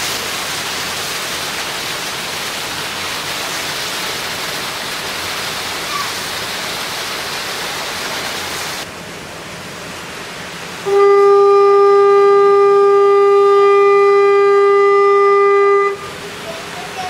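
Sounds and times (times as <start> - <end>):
sea: 0.0 - 17.0
wind: 0.0 - 17.0
ship's whistle blast: 10.9 - 16.2.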